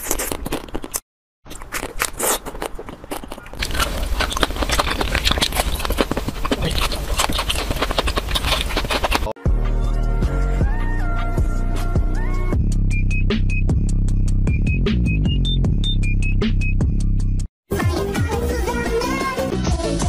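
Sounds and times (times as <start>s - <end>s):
crunching bites of ice cream bars: 0.0s - 9.3s.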